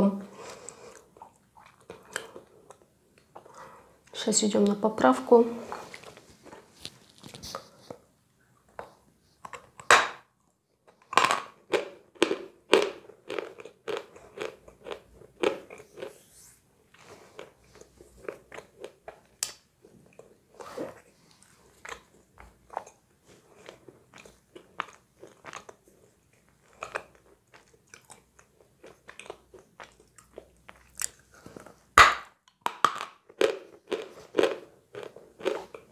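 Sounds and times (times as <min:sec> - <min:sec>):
chewing chalk crunches: 0:10.9 - 0:16.2, 0:17.0 - 0:31.8, 0:32.5 - 0:35.9.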